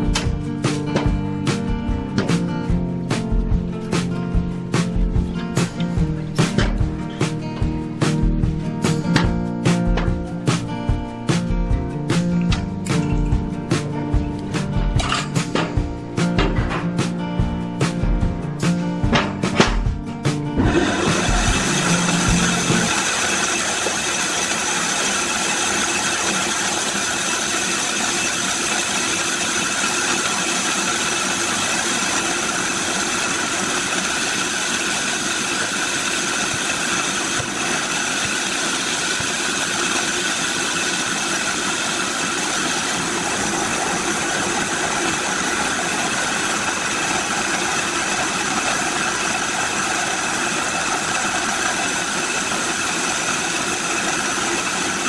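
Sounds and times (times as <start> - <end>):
bandsaw sawing log: 20.6 - 55.0.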